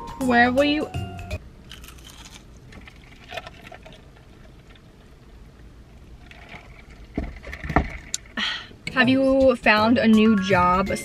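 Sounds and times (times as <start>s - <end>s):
faint eating sounds: 1.7s - 5.3s.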